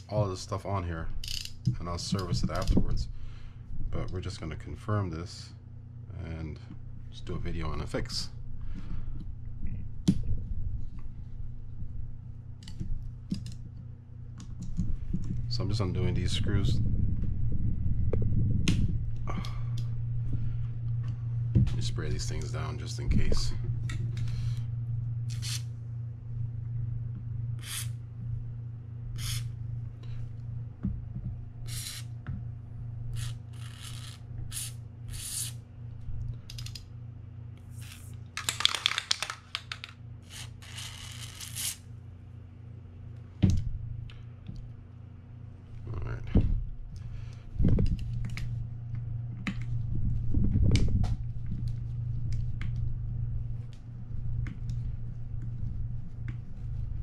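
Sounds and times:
steady low hum: 0.0s - 57.0s
aerosol spray hissing: 29.2s - 29.5s.

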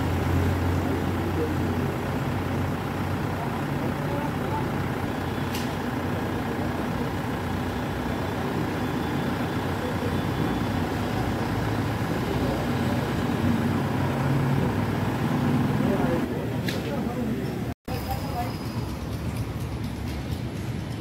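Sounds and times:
diesel engine running: 0.0s - 21.0s
sharp click: 5.5s - 5.8s, 16.6s - 16.9s.

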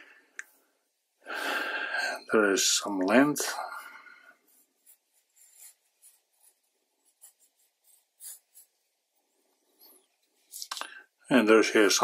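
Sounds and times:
pencil scratching on paper: 4.4s - 9.0s.

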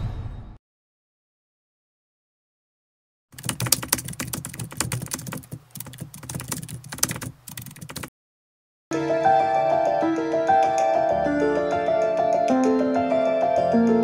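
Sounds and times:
keyboard key clicks: 3.4s - 8.1s.

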